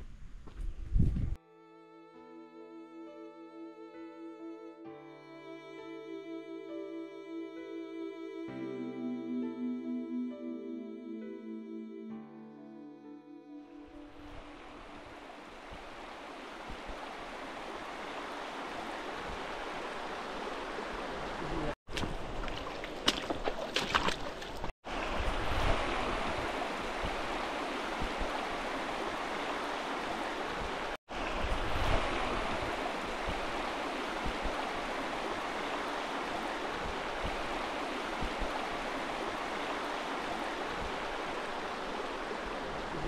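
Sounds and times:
water rushing down a stream: 0:14.2 - 0:43.0.

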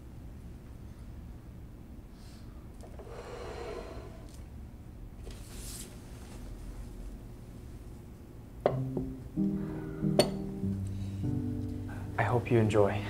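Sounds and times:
room hum: 0:00.0 - 0:13.0
woman breathing: 0:02.1 - 0:04.6, 0:09.5 - 0:10.1, 0:10.8 - 0:12.2.

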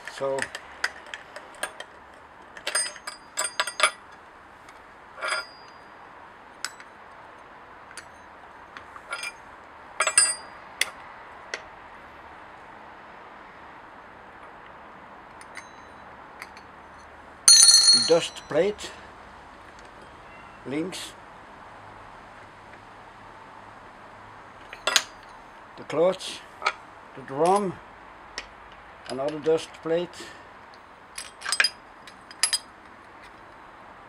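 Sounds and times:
metal tools clinking on metal: 0:02.6 - 0:04.2, 0:05.2 - 0:05.9, 0:09.0 - 0:09.4, 0:10.0 - 0:10.5, 0:15.4 - 0:16.7, 0:17.5 - 0:18.6, 0:24.6 - 0:26.0, 0:26.6 - 0:27.8, 0:31.1 - 0:33.4.

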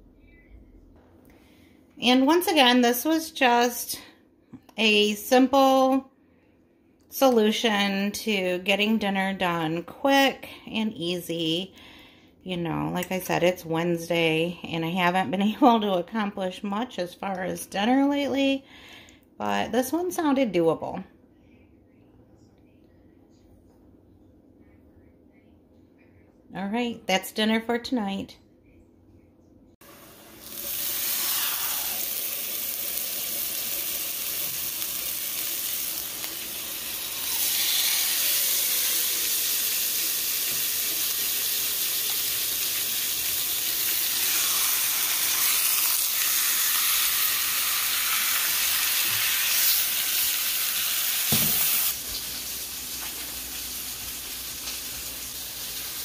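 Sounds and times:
steaks sizzling in hot oil: 0:29.9 - 0:56.0
knock: 0:51.3 - 0:51.6.

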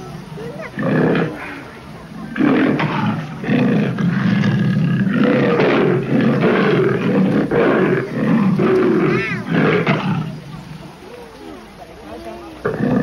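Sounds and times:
tiger roaring: 0:00.7 - 0:01.6, 0:02.2 - 0:10.4.

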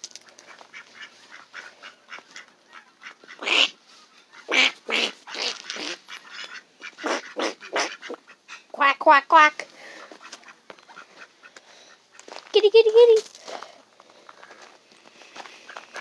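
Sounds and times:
ducks quacking: 0:00.4 - 0:12.4.

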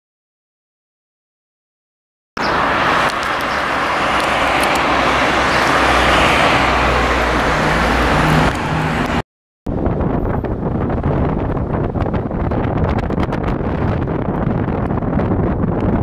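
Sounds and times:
low engine hum: 0:02.4 - 0:15.0
passing vehicles: 0:02.4 - 0:16.0
wind buffeting microphone: 0:02.4 - 0:16.0.

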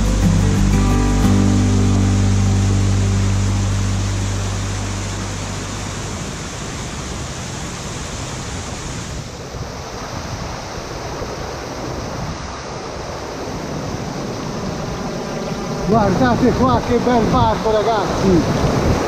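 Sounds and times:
stream water rushing: 0:00.0 - 0:19.0
wind buffeting microphone: 0:08.4 - 0:19.0.

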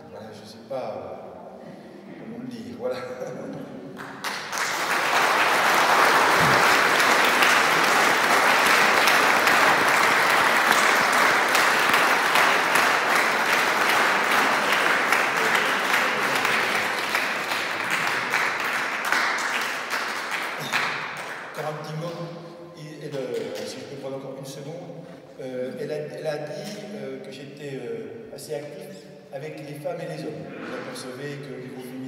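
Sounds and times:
congregation applauding: 0:03.9 - 0:22.3.

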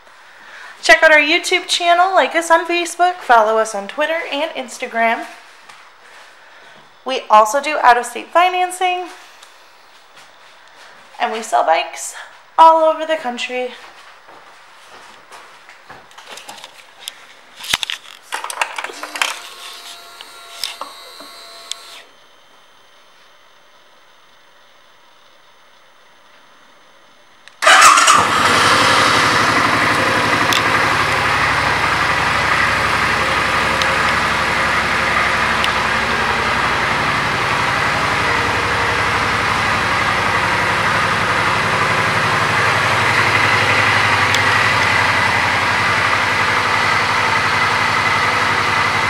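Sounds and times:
motorcycle engine starting and idling: 0:18.3 - 0:22.1, 0:27.6 - 0:49.0.

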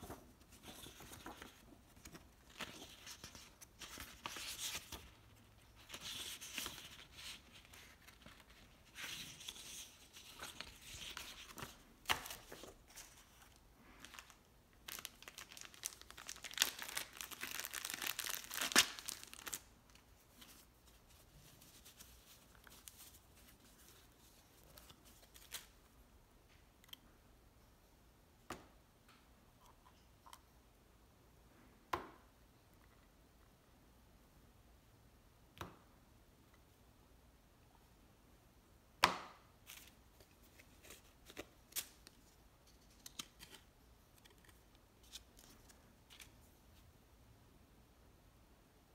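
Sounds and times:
paper rustling and crinkling: 0:00.0 - 0:05.2, 0:05.8 - 0:25.8.

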